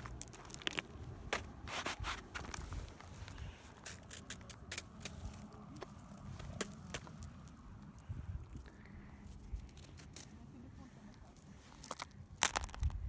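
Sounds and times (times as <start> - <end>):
footsteps crunching on snow and rock: 0.0 - 8.0.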